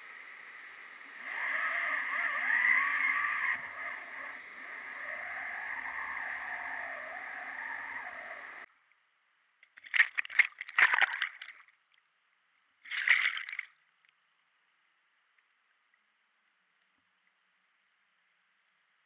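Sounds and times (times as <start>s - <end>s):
camera splashing in water: 9.7s - 11.6s, 12.8s - 13.7s.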